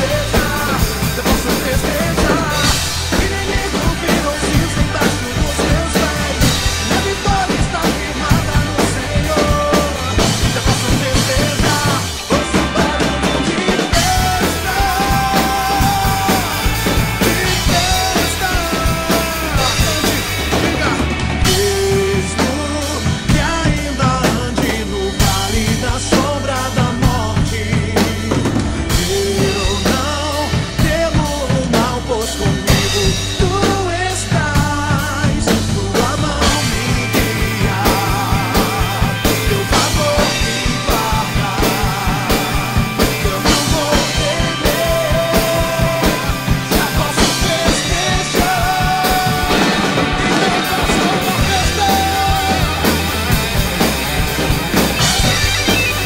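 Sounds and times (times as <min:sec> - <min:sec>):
person singing melody: 0:00.0 - 0:53.6
acoustic drum kit playing: 0:00.0 - 0:56.0
recorded gospel rock song: 0:00.0 - 0:56.0
fast bass drum pulse: 0:34.6 - 0:56.0.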